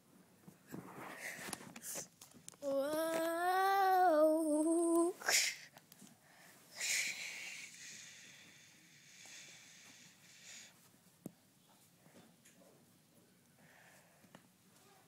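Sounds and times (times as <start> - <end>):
child humming: 2.6 - 5.6
short breathy hisses: 6.8 - 10.7.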